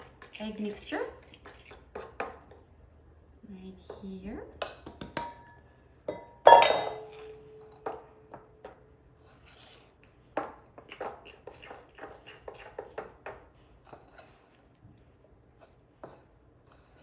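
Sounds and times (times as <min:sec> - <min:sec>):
spoon stirring flour in bowl: 0:00.0 - 0:03.1, 0:07.0 - 0:17.0
metal bowl clanging on counter: 0:03.9 - 0:08.8.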